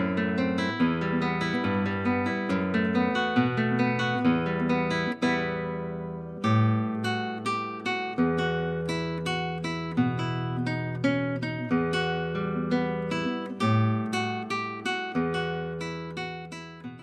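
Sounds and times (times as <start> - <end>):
acoustic guitar music: 0.0 - 17.0.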